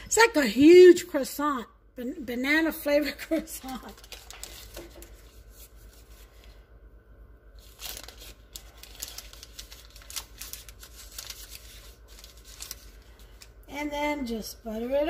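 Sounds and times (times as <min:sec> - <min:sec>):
paper wrapper crinkling and tearing: 0:03.2 - 0:06.6, 0:07.6 - 0:13.7.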